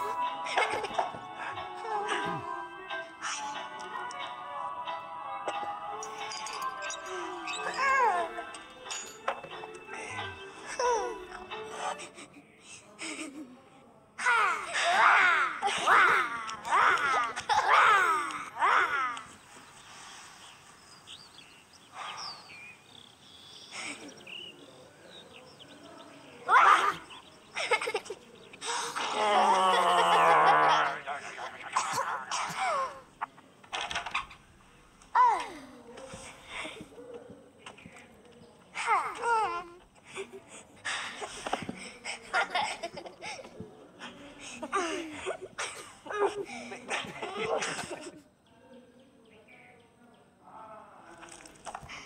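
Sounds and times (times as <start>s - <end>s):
small birds chirping: 2.7s - 12.9s, 15.6s - 29.2s
cartoon kitten voices giggling: 27.6s - 33.0s.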